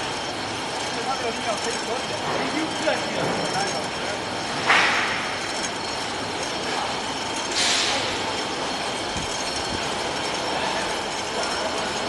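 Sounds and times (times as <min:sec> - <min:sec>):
yarn winders mechanical din: 0:00.0 - 0:12.0
burst of hiss: 0:07.6 - 0:08.1.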